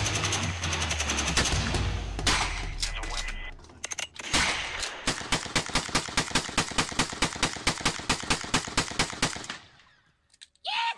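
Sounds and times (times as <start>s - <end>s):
rapid gunfire: 0.0s - 2.8s, 4.3s - 9.6s.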